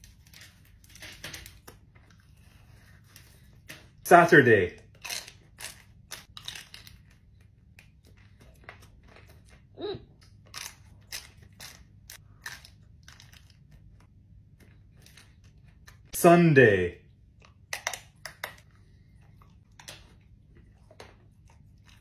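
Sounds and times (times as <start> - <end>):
low voice hum: 9.8 - 10.2.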